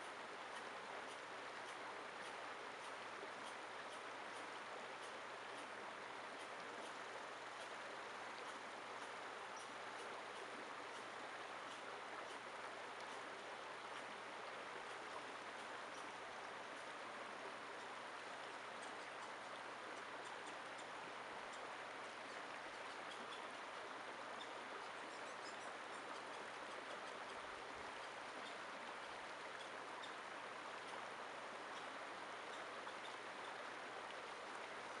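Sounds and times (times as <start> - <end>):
faint high ticks: 0.0 - 5.7, 6.3 - 14.1, 17.8 - 20.9
creek flowing over rocks: 0.0 - 35.0.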